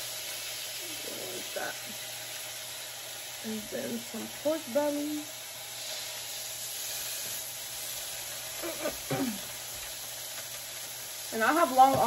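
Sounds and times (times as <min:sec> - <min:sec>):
meat sizzling on a griddle: 0:00.0 - 0:12.0.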